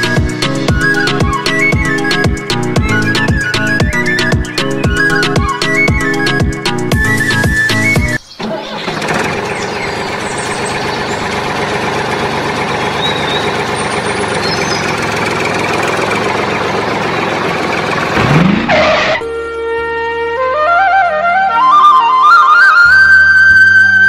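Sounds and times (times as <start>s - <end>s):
flute music: 0.0s - 8.2s, 18.7s - 24.0s
tractor engine running: 0.0s - 19.3s.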